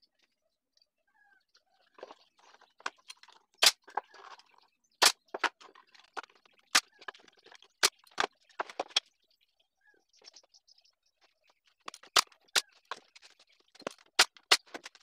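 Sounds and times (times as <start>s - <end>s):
wooden pieces knocking: 2.8s - 9.0s, 11.9s - 15.0s.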